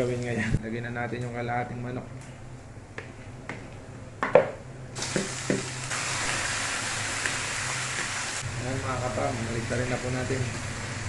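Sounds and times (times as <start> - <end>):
chicken sizzling in hot oil: 5.0 - 11.0.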